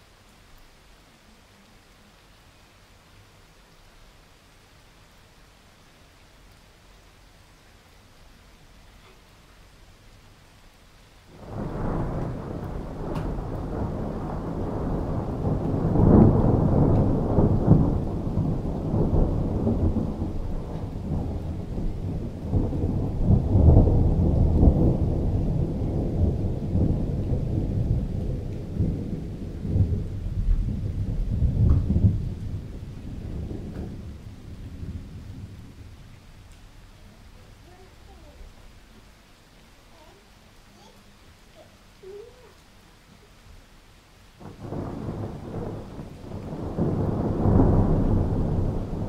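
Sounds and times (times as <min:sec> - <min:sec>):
rolling thunder: 0:11.3 - 0:37.8, 0:44.4 - 0:49.0.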